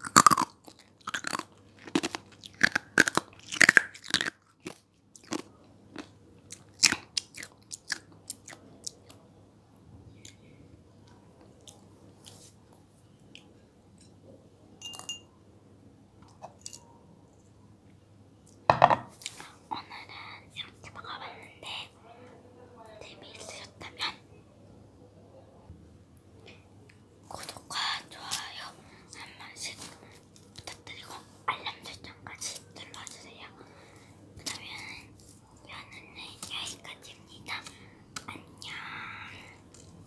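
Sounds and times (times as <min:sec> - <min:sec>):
chewing mandarin wet clicks: 0:00.0 - 0:09.2.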